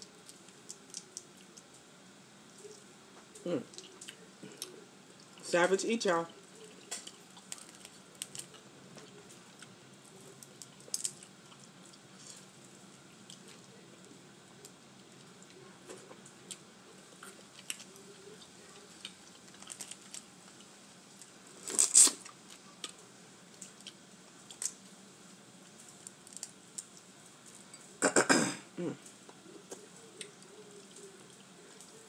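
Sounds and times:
shells cracking and tearing: 6.9 - 8.6, 10.4 - 11.3, 19.4 - 20.3, 21.6 - 22.6, 26.0 - 26.9.

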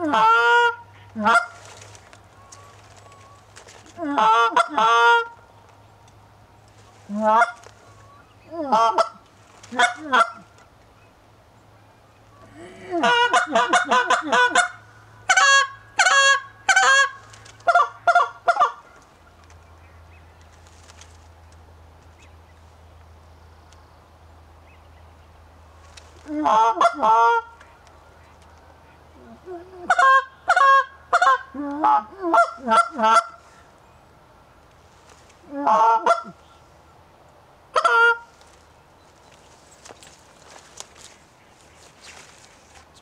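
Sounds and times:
goose call honks and clucks: 0.0 - 5.4, 7.0 - 10.7, 12.4 - 19.1, 26.2 - 27.8, 28.8 - 33.6, 35.4 - 36.5, 37.7 - 38.4.

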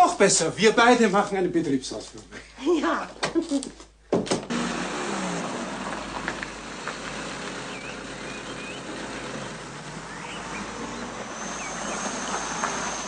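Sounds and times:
bird chirps: 7.7 - 13.0.

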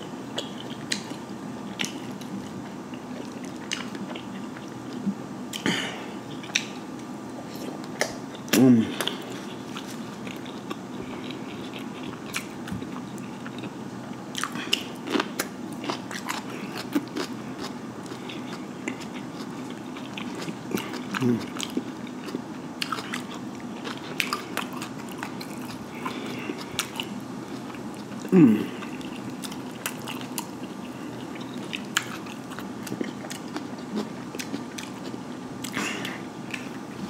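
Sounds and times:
man chewing and lip smacking: 0.3 - 5.7, 6.3 - 37.0
man humming briefly: 28.3 - 28.9.

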